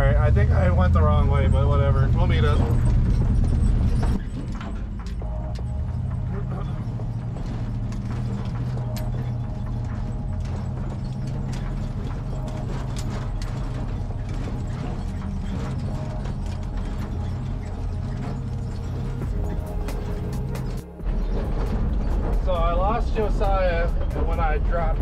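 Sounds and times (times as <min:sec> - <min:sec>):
car engine droning: 0:00.0 - 0:25.0
tyres and body rattling on rocks: 0:02.3 - 0:25.0.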